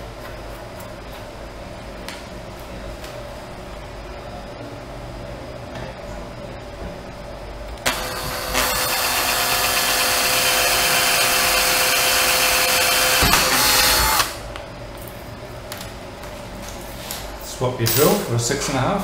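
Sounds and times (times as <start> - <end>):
cordless drill drilling into plastic: 7.9 - 14.4.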